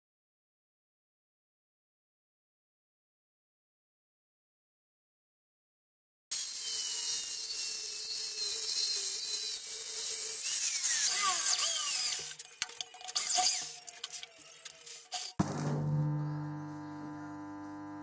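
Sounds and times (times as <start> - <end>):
high-speed rotary tool bursts: 6.3 - 12.4
angle grinder cutting steel: 6.3 - 12.5.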